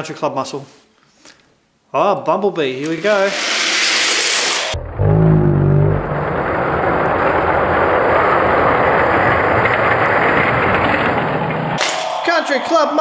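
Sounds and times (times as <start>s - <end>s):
toy cars rolling on plastic track: 2.8s - 4.6s, 6.9s - 12.0s
low hum: 4.7s - 7.6s.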